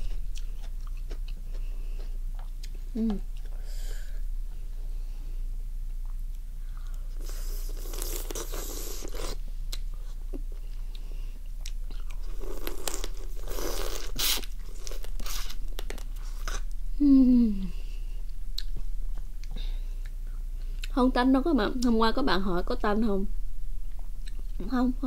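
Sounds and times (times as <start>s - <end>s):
hum through closed lips: 0.0s - 22.2s, 22.8s - 25.0s.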